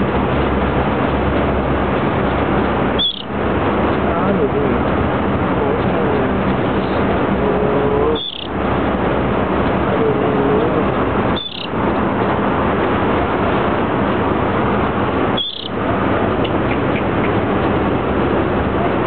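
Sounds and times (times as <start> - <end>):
small bird chirps: 3.0 - 3.3, 8.2 - 8.5, 11.4 - 11.7, 15.4 - 15.7.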